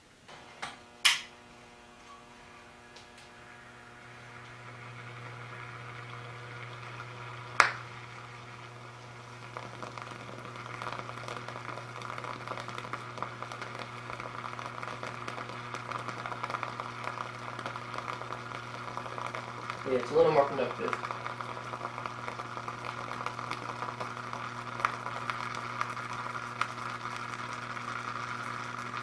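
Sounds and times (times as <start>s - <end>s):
low electrical hum: 0.0s - 29.0s
water crackling and fizzing: 4.0s - 29.0s
sharp pop: 7.6s - 7.9s.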